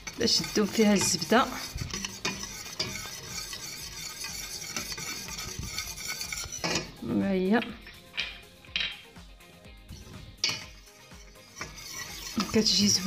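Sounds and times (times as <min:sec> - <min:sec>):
whisk wires clinking on pan: 0:00.0 - 0:06.9, 0:10.4 - 0:13.0
whisk scraping a steel saucepan: 0:00.0 - 0:07.0, 0:09.9 - 0:13.0.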